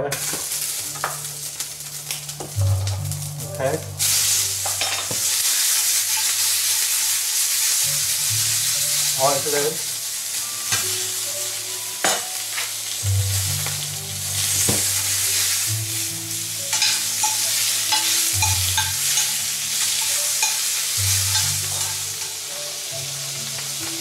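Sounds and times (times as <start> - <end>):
fish sizzling in a pan: 0.0 - 24.0
metal spoon clinking on pan: 16.7 - 22.4.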